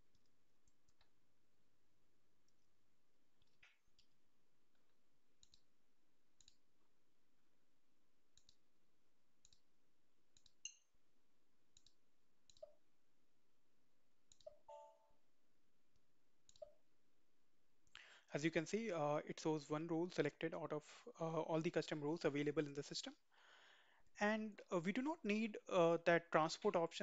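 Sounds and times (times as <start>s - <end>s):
computer mouse clicks: 5.4s - 5.6s, 6.4s - 6.6s, 8.4s - 8.6s, 9.4s - 9.6s, 10.3s - 10.8s, 11.8s - 12.8s, 14.3s - 14.6s, 16.5s - 16.8s.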